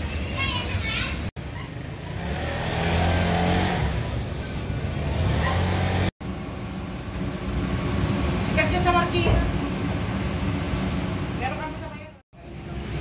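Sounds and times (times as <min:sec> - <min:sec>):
street noise: 0:00.0 - 0:13.0
vehicle engine passing: 0:01.8 - 0:11.5.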